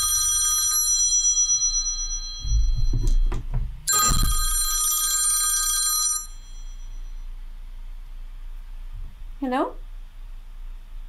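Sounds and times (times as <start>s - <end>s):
phone ringtone electronic trill: 0.0s - 3.3s, 3.9s - 7.0s
dull low bumps: 2.4s - 4.4s.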